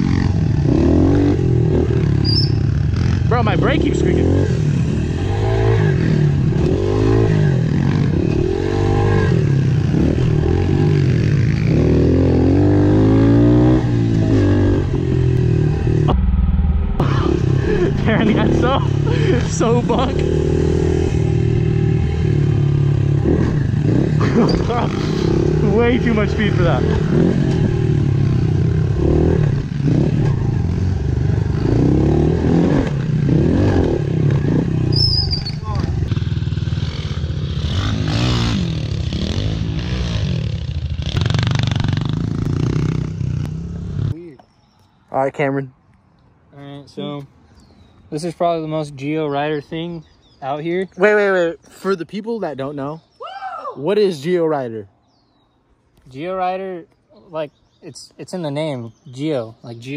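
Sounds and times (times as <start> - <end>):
dirt bike engine revving: 0.0 - 44.1.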